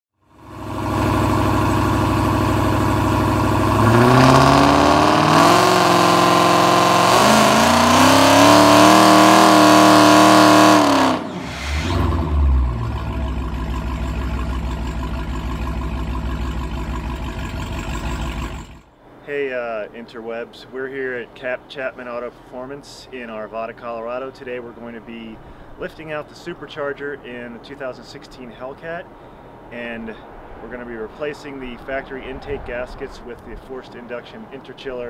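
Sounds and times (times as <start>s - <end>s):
car engine revving and idling: 0.3s - 18.9s.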